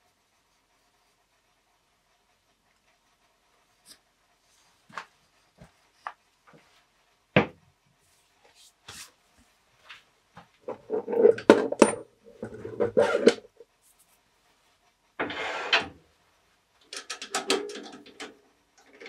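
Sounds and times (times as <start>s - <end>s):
metal clinking and clattering: 10.7s - 13.5s
clicks and knocks: 16.8s - 18.4s.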